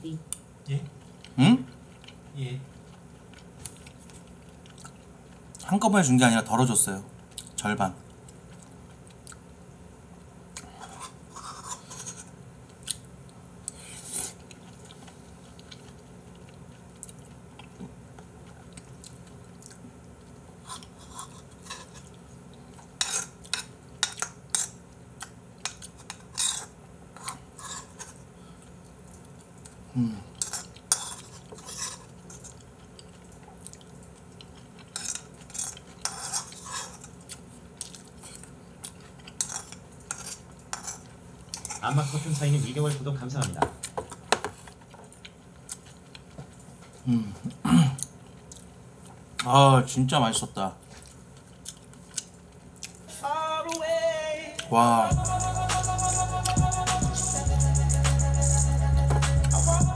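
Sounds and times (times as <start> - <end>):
chewing: 1.0 - 5.6, 7.3 - 9.5, 10.5 - 41.8, 43.8 - 47.0, 50.8 - 53.1.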